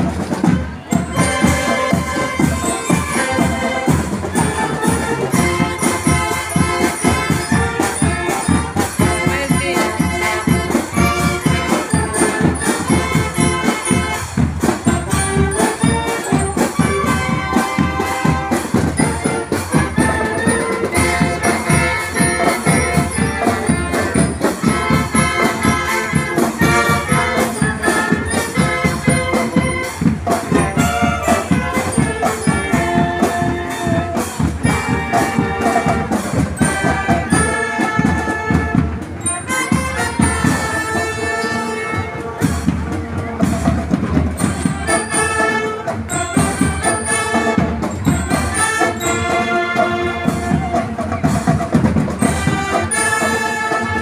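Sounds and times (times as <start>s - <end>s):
marching band playing: 0.0s - 54.0s.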